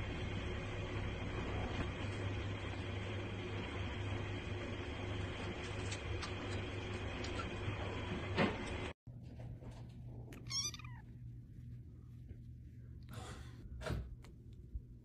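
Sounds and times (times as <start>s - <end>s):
soft rustling: 9.2s - 15.0s
kitten meowing: 10.4s - 11.1s.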